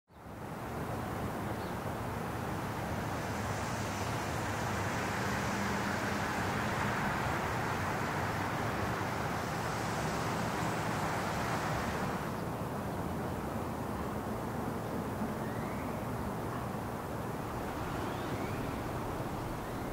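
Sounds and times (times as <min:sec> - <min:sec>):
city traffic noise: 0:00.2 - 0:19.9.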